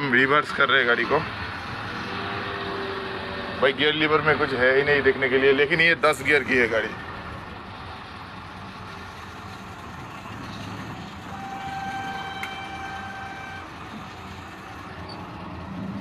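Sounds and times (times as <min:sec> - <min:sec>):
diesel truck engine running: 0:00.0 - 0:16.0
truck horn: 0:11.2 - 0:14.0.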